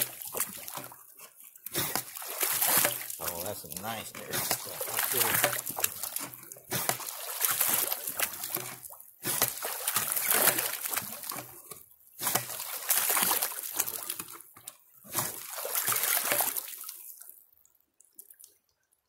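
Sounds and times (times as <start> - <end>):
water splashing into a bucket: 0.0 - 17.4.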